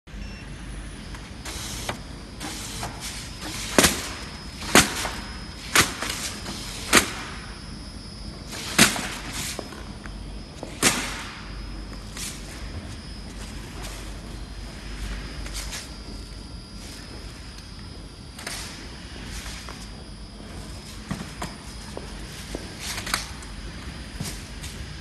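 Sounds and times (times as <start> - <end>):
belt conveyor humming: 0.2 - 25.0.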